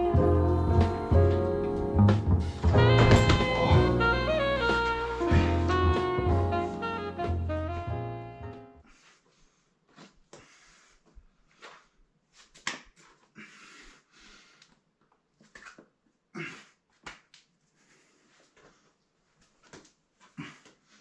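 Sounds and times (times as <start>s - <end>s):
person breathing forcefully: 8.8s - 11.6s, 13.4s - 14.6s.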